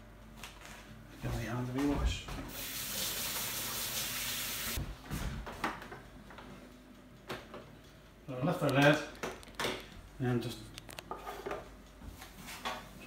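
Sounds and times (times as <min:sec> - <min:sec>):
kitchen tap running: 0:02.5 - 0:04.8.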